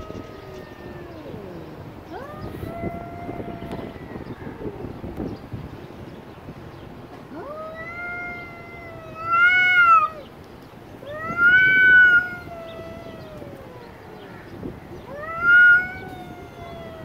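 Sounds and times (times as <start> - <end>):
cats yowling: 0.0 - 4.8, 7.3 - 17.0.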